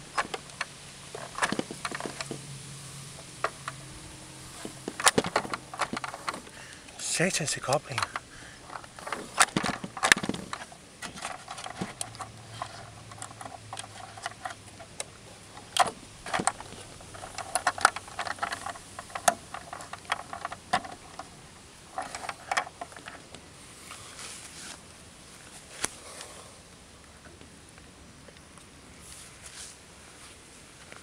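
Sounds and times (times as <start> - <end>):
plastic clicks and knocks: 0.1 - 2.4, 4.6 - 6.6, 7.8 - 21.3.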